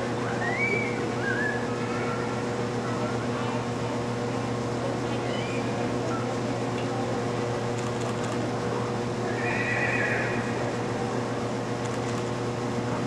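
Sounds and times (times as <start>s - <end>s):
steady low hum: 0.0s - 13.0s
horse whinnying: 9.3s - 10.9s.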